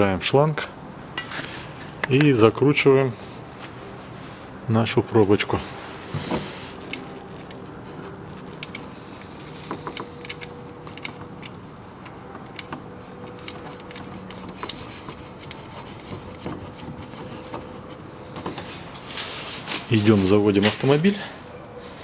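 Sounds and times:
hands clicking and tapping under car: 9.6 - 18.7.

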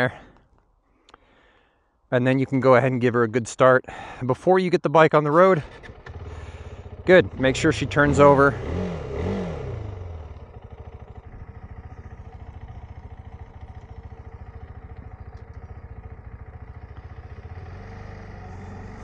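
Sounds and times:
motorcycle engine idling: 5.6 - 19.0.

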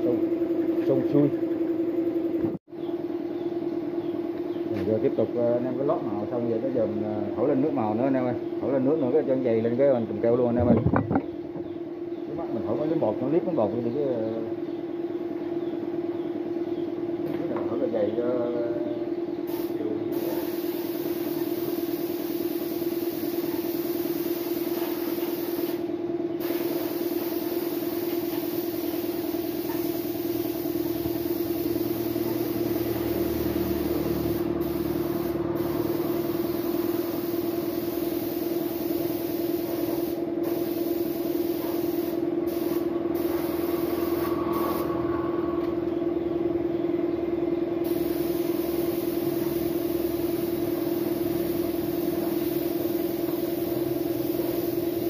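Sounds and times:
pitched machine hum: 0.0 - 4.4, 28.7 - 41.4, 42.2 - 55.0
spray gun hissing: 19.5 - 25.8, 26.4 - 44.9, 47.8 - 55.0.

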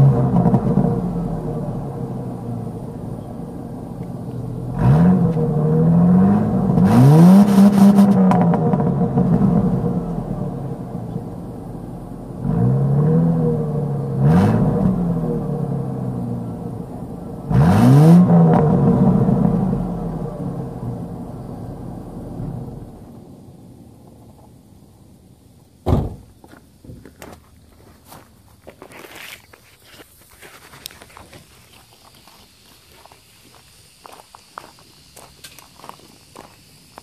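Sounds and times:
car engine revving: 0.0 - 23.3.

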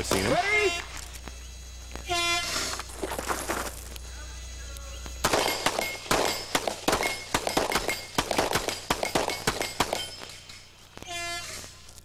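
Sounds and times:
pistol shots: 5.2 - 10.5.

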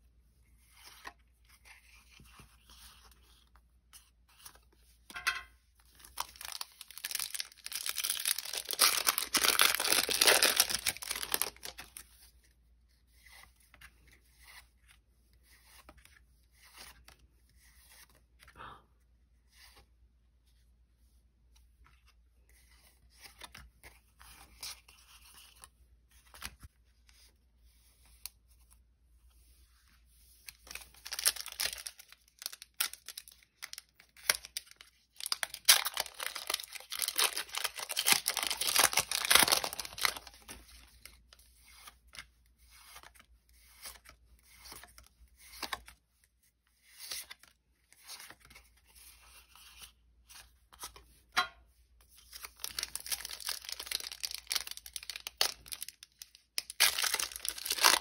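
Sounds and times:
cards rustling and clicking: 5.8 - 12.4, 30.4 - 46.0, 52.1 - 58.0
foil wrapper tearing and crinkling: 6.1 - 12.0, 30.7 - 40.6, 52.5 - 58.0.

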